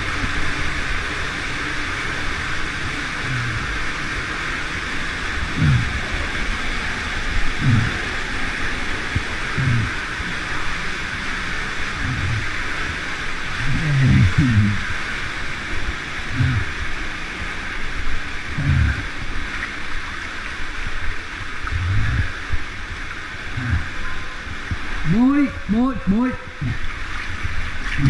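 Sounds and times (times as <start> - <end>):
flowing water rushing: 0.0 - 28.0
muffled water sloshes: 0.0 - 28.0.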